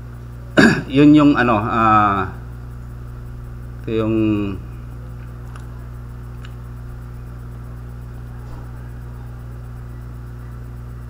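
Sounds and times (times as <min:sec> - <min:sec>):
electrical mains hum: 0:00.0 - 0:11.0
faint clicks: 0:05.1 - 0:06.7.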